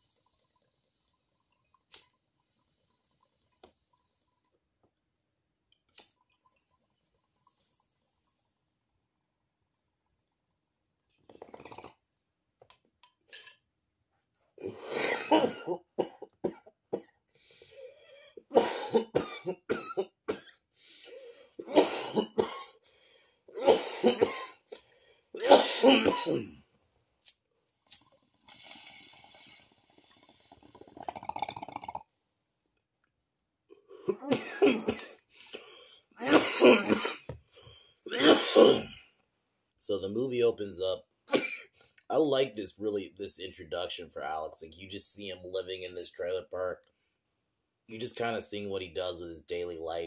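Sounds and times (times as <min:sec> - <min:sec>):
person clearing throat: 0:14.6 - 0:17.1, 0:21.6 - 0:22.7, 0:23.5 - 0:24.6, 0:25.4 - 0:26.6, 0:34.0 - 0:35.2, 0:36.2 - 0:37.4, 0:38.1 - 0:39.0
person coughing hard: 0:14.6 - 0:17.1, 0:18.5 - 0:20.6, 0:21.6 - 0:22.8, 0:23.5 - 0:24.6, 0:25.4 - 0:26.6, 0:34.0 - 0:35.2, 0:36.2 - 0:37.4, 0:38.1 - 0:39.0, 0:41.3 - 0:41.7.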